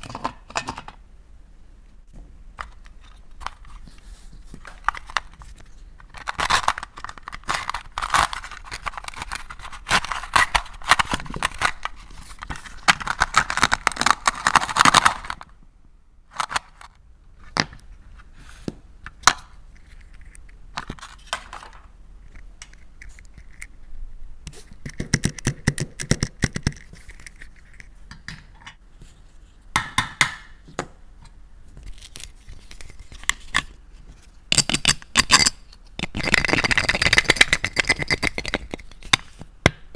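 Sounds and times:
plastic scraping and rasping: 3.0s - 15.4s.

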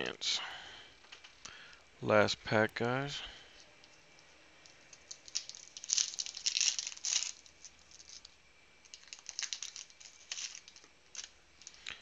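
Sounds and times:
foil pack crinkling: 4.6s - 12.0s.

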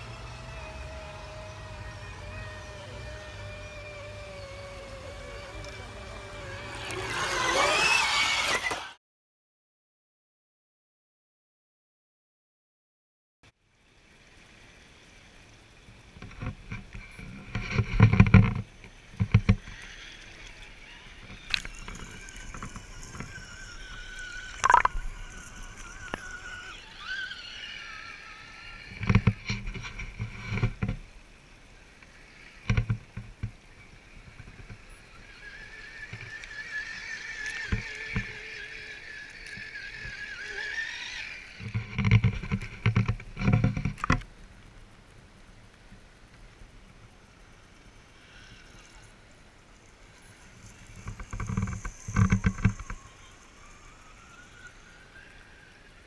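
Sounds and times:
toy truck motor whining: 0.0s - 9.0s, 16.4s - 31.0s, 31.7s - 44.2s, 49.8s - 56.0s
water splashing with thumps: 21.2s - 26.7s.

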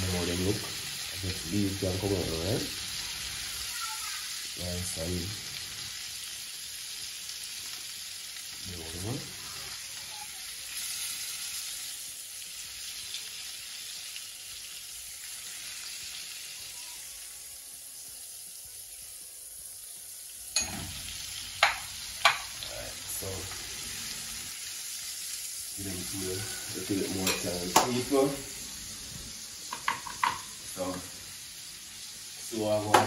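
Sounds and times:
crayfish deep-frying in oil: 0.0s - 33.0s
utensil knocking against pan: 21.6s - 22.5s.

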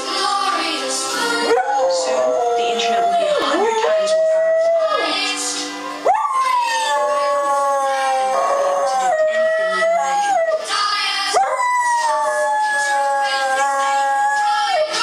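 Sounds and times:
commercial song on tv: 0.0s - 15.0s
dog howling: 1.5s - 5.1s, 6.0s - 10.6s, 11.3s - 14.8s.

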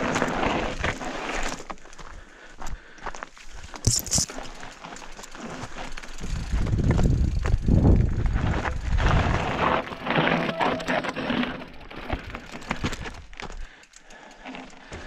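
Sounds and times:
bike rattling: 0.0s - 2.5s, 3.3s - 15.0s
tyres crunching over stones: 3.1s - 10.7s
wind rumble on microphone: 6.2s - 9.8s.

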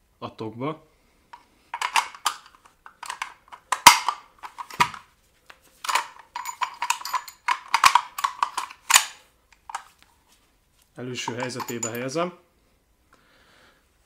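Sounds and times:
gun bolt clicking and scraping: 1.8s - 5.0s, 5.8s - 10.0s, 11.3s - 12.1s.

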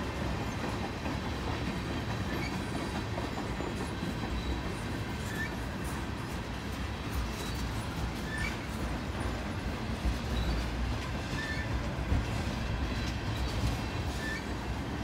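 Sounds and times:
train wheels rumbling on rail: 0.0s - 15.0s
high wheel squeaks: 2.2s - 6.0s, 7.3s - 9.5s, 10.1s - 11.9s, 12.9s - 14.6s.

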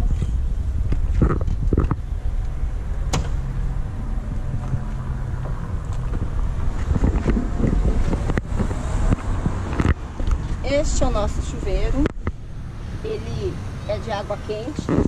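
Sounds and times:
low rumble: 0.0s - 14.0s
van doors opening: 3.0s - 3.9s
door latch click: 3.1s - 3.4s.

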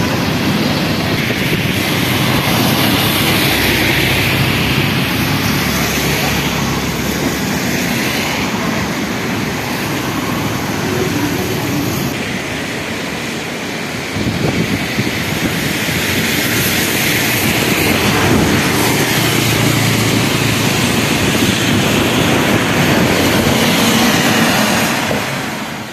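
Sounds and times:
river rushing: 0.0s - 25.9s
road traffic rushing: 0.0s - 25.9s.

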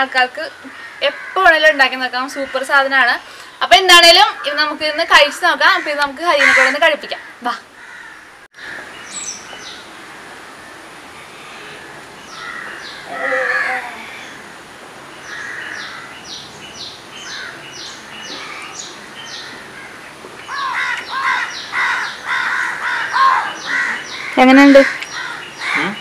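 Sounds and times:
crows cawing: 0.6s - 1.7s, 5.7s - 8.9s, 9.6s - 16.4s, 17.3s - 26.0s.

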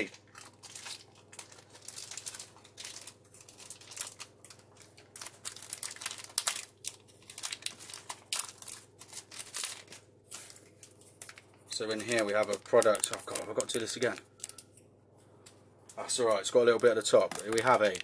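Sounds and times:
plastic bag crinkling and tearing: 0.0s - 14.8s, 16.4s - 18.0s.

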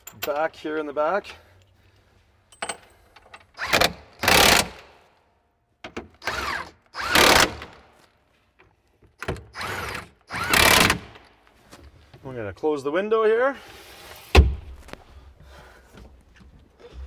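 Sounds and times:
impact wrench bursts: 3.6s - 4.9s, 6.2s - 7.8s, 9.4s - 11.2s.

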